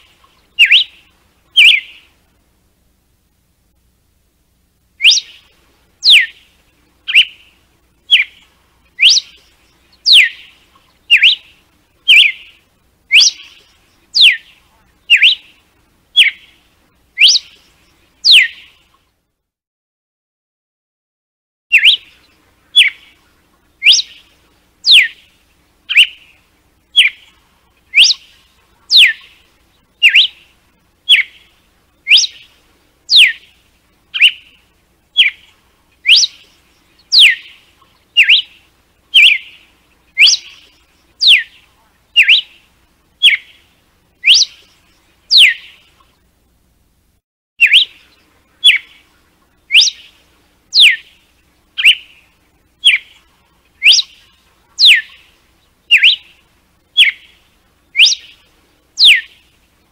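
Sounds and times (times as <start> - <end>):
bird singing sharp whistled notes: 0.0 - 2.1, 5.0 - 6.5, 7.1 - 15.6, 16.2 - 16.6, 17.2 - 18.8, 21.7 - 23.2, 23.8 - 25.3, 25.9 - 30.5, 31.1 - 34.6, 35.2 - 42.6, 43.2 - 45.9, 47.6 - 49.1, 49.7 - 51.2, 51.8 - 53.2, 53.8 - 55.3, 55.9 - 56.4, 57.0 - 59.5.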